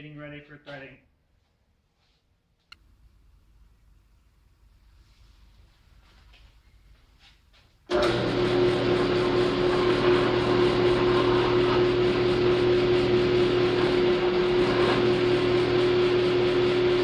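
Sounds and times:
drill bit drilling steel: 0:07.9 - 0:17.0
drill press motor humming: 0:07.9 - 0:17.0.

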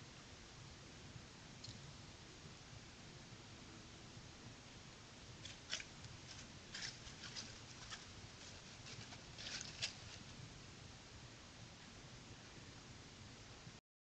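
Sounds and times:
low hiss: 0:00.0 - 0:13.8
animal footsteps on dry leaves: 0:05.4 - 0:10.4.

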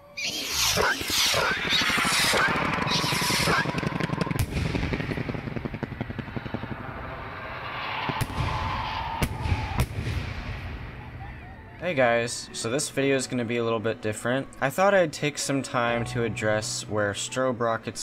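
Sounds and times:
rockets stuttering chop: 0:00.5 - 0:11.0
sharp bangs: 0:00.5 - 0:11.1.

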